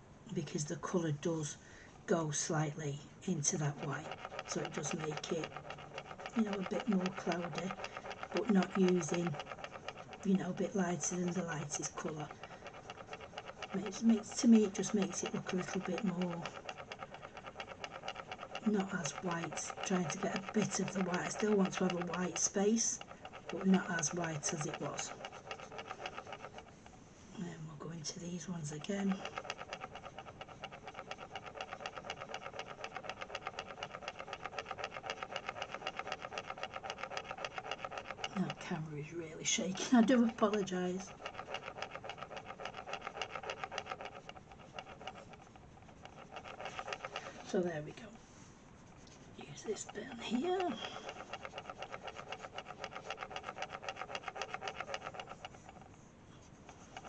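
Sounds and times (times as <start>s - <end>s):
cotton bud rubbing on paper: 39.7s - 57.0s.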